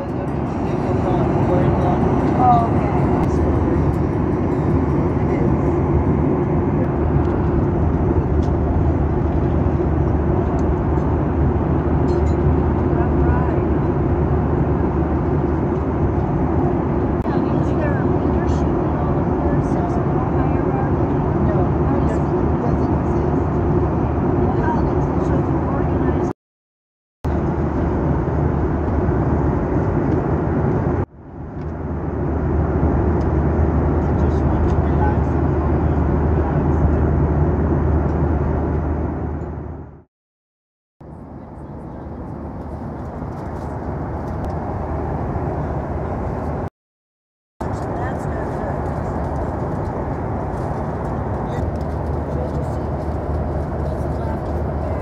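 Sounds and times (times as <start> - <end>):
airplane cabin engine rush: 0.0 - 26.3, 27.2 - 40.1, 41.0 - 46.7, 47.6 - 55.0.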